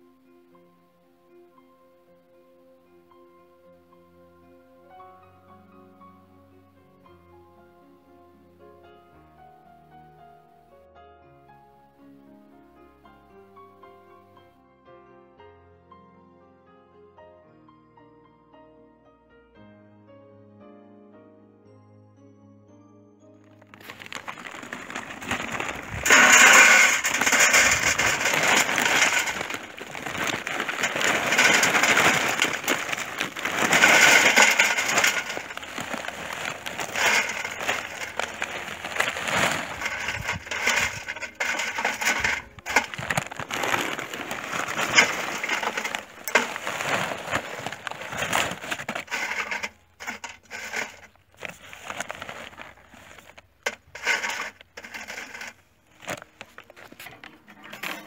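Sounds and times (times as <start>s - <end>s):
charcoal clattering on metal: 23.6s - 58.0s
paper bag rustling: 23.6s - 58.0s.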